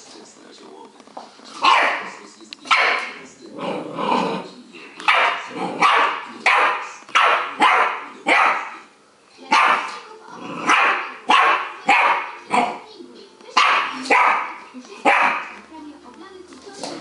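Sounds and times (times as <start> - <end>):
puppy play-barking: 1.6 - 4.3, 5.0 - 8.9, 9.5 - 12.9, 13.5 - 15.6.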